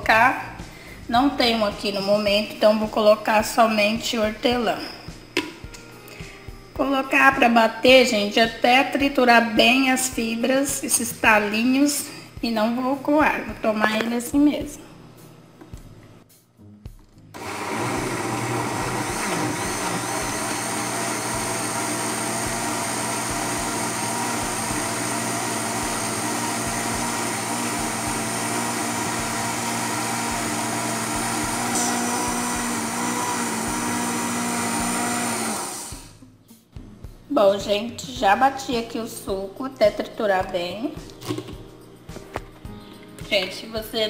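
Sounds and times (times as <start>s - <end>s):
blender running: 17.4s - 36.2s.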